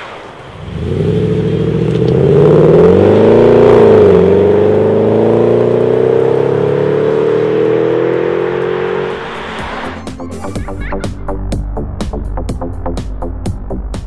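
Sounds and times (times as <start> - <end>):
car engine accelerating hard: 0.1 - 10.4.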